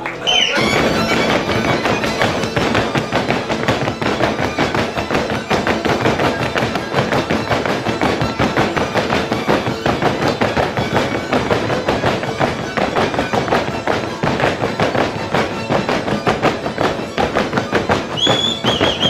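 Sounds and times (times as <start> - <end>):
faint folk music: 0.0 - 19.0
boots stamping: 0.4 - 19.0.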